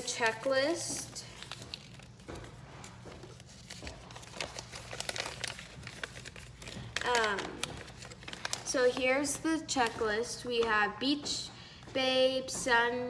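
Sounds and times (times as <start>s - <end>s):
packaging crinkling: 0.0s - 10.4s.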